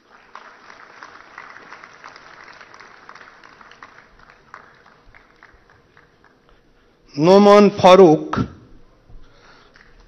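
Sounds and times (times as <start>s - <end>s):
audience applause: 0.0s - 6.7s.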